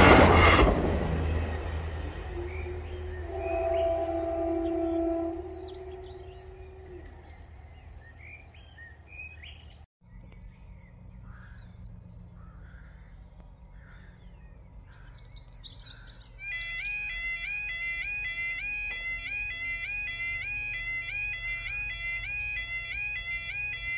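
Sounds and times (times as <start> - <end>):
birds chirping: 0.0 - 23.9
low background rumble: 0.6 - 16.4
level crossing two-tone alarm: 16.4 - 23.9.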